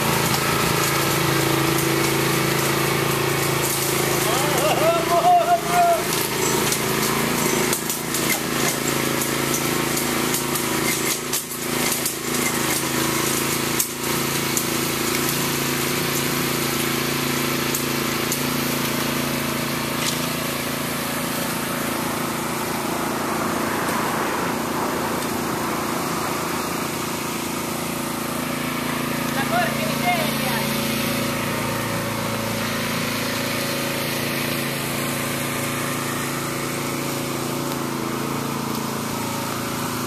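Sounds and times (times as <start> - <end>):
hand tools knocking and scraping soil: 0.0 - 23.1
engine running steadily: 0.0 - 40.0.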